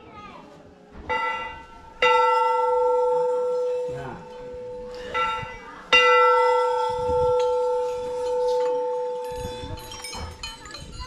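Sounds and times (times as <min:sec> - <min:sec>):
faint bell clinks: 0:01.2 - 0:11.0
metal bell ringing: 0:01.2 - 0:11.0.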